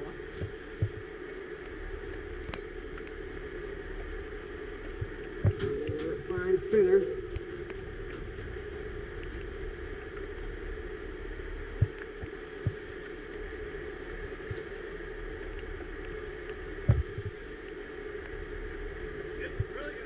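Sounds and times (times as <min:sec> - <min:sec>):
dull low thumps: 0:00.0 - 0:01.1, 0:04.9 - 0:06.5, 0:16.8 - 0:17.4.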